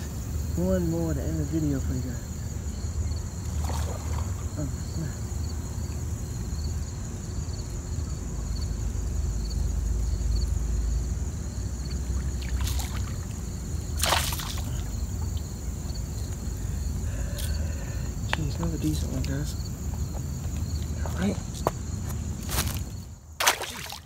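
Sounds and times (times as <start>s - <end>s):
insects trilling: 0.0s - 24.0s
fish splashing: 3.4s - 4.9s, 11.9s - 15.5s, 23.4s - 24.0s.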